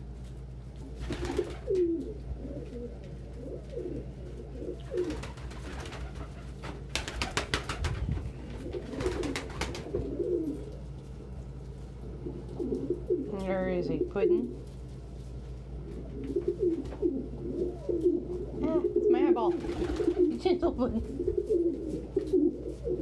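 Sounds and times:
pigeons cooing: 0.7 - 14.7, 15.4 - 23.0
wings flapping: 0.8 - 10.8, 16.2 - 18.3, 19.4 - 23.0.

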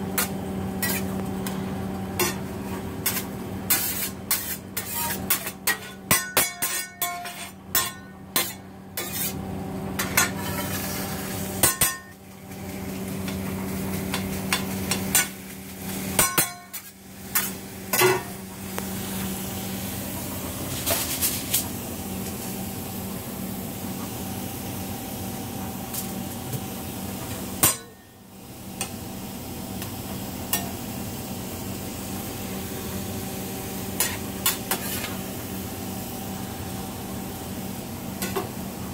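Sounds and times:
metal spatula clanking and scraping: 0.2 - 1.2, 3.0 - 9.4, 10.0 - 11.0, 11.6 - 12.1, 16.2 - 18.3, 34.0 - 35.2
eggs sizzling on a griddle: 2.2 - 5.5, 10.0 - 21.6, 26.8 - 38.9.

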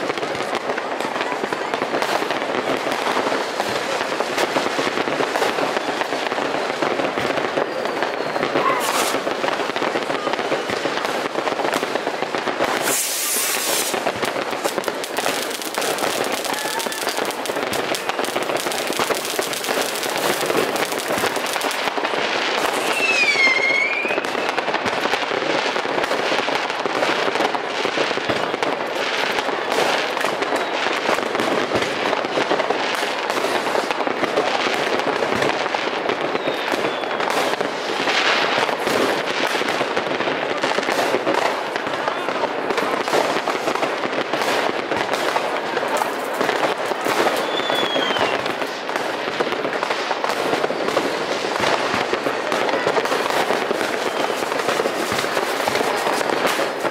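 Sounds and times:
fireworks crackling and banging: 0.0 - 56.9
firework whistle: 7.2 - 10.8, 12.6 - 14.6, 15.2 - 21.9, 22.5 - 24.7, 36.1 - 37.6, 47.0 - 48.6, 53.0 - 56.8.

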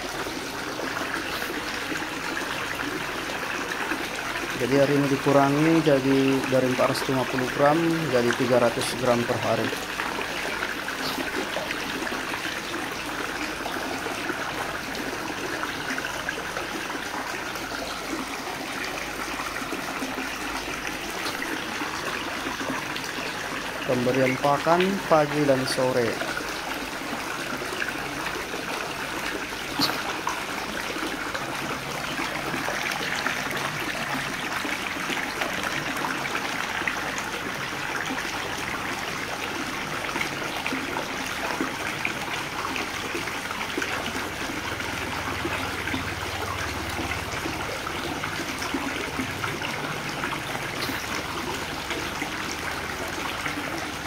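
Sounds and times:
fish splashing at water surface: 7.6 - 23.9, 25.9 - 40.9, 43.1 - 54.0.

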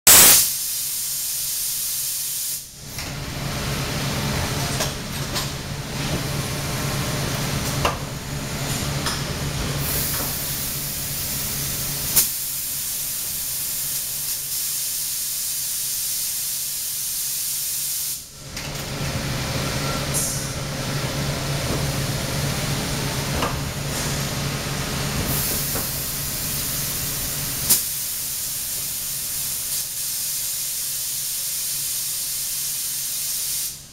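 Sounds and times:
machine hiss: 0.1 - 2.8, 9.7 - 18.3, 23.5 - 33.9
low machine hum: 2.8 - 13.8, 18.3 - 29.6.

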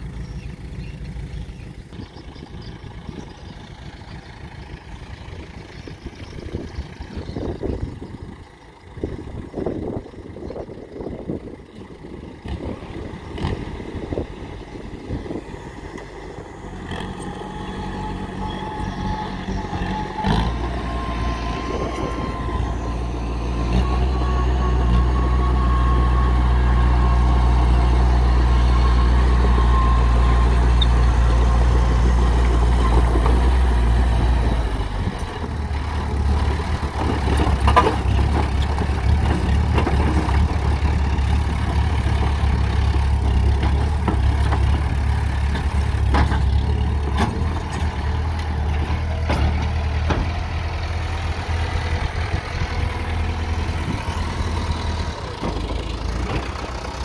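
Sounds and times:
dozer diesel engine: 0.0 - 57.0
knocks and rattles: 43.3 - 50.5.

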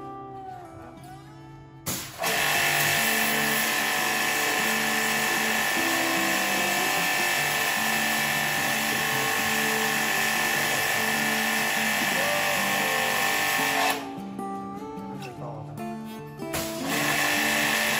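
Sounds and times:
pressure washer pump whining: 1.9 - 14.1, 16.6 - 17.9.

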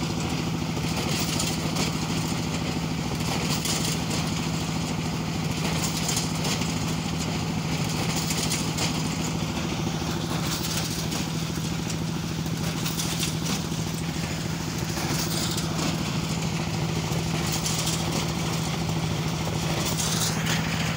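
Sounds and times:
steady engine drone: 0.0 - 20.9.

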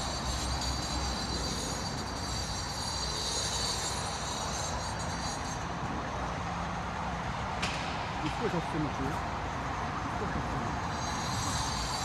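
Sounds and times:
high thin whine: 0.0 - 6.4, 10.7 - 12.0
steady mechanical noise: 0.0 - 12.0.

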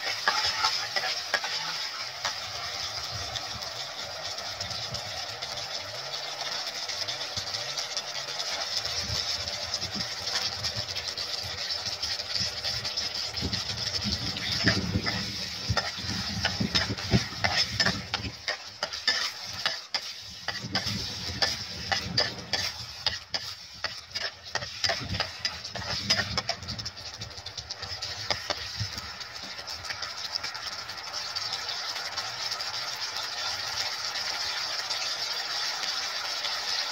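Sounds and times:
metal spatula scraping pan: 0.0 - 2.9, 10.3 - 28.8
food sizzling in sauce: 0.0 - 36.9.

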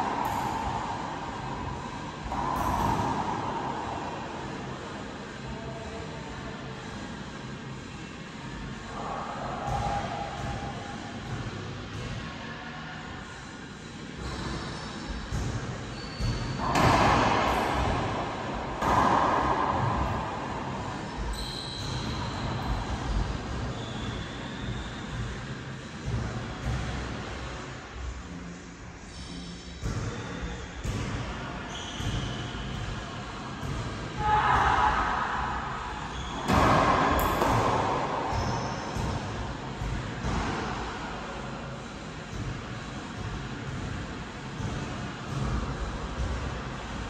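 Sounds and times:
racquetball hit echoing: 0.0 - 5.4, 15.1 - 24.6, 33.6 - 46.5.

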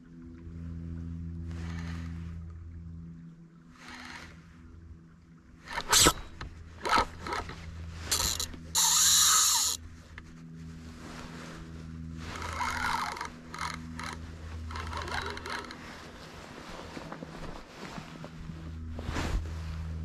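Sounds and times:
fishing reel whirring: 1.5 - 2.4, 3.7 - 4.5, 5.6 - 9.9, 12.2 - 15.8
rustling: 5.7 - 20.0.

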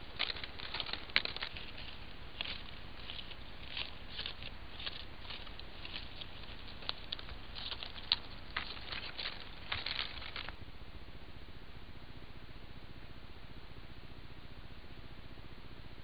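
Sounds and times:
footsteps rustling in leaf litter: 0.0 - 10.6
twig snapping: 0.0 - 10.6
steady low hiss: 0.0 - 16.0.

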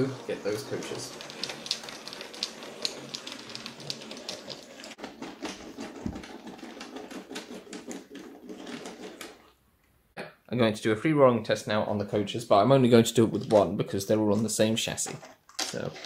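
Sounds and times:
model wagons clicking over rail joints: 0.0 - 9.5.

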